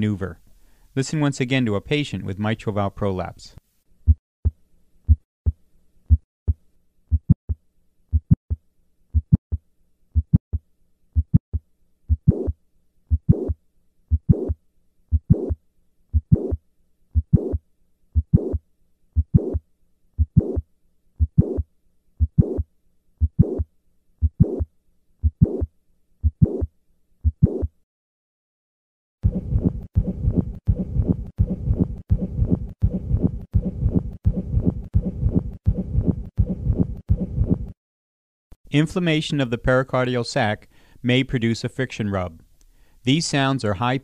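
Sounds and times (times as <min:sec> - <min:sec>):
heartbeat with click and murmur: 0:04.1 - 0:09.6, 0:10.2 - 0:17.6, 0:18.2 - 0:18.6, 0:19.2 - 0:19.6, 0:20.2 - 0:20.6, 0:21.2 - 0:27.8, 0:29.2 - 0:37.8.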